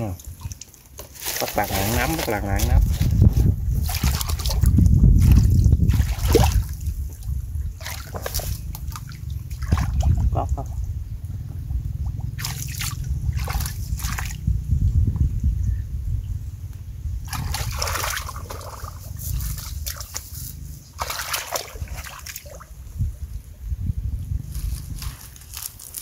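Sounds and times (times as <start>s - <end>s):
steady low rumble: 0.0s - 26.0s
shallow water splashing: 0.1s - 10.4s, 12.3s - 14.4s, 17.3s - 22.8s.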